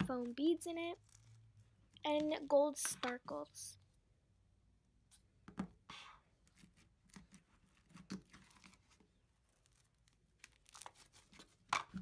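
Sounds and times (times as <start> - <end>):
slime crackling and crunching: 9.5 - 11.3.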